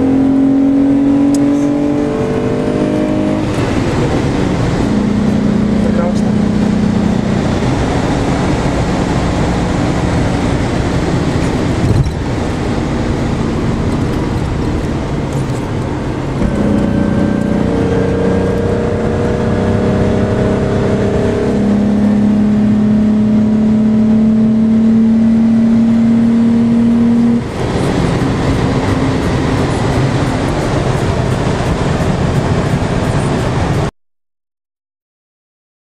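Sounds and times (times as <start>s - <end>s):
car engine drone from cabin: 0.0s - 33.9s.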